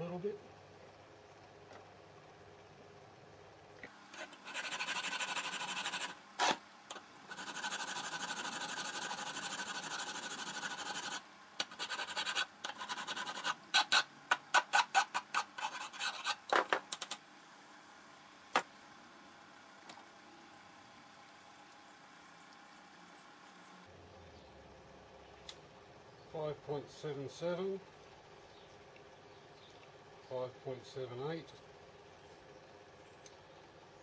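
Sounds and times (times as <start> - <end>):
file rasping on metal: 4.2 - 6.6, 7.3 - 16.5.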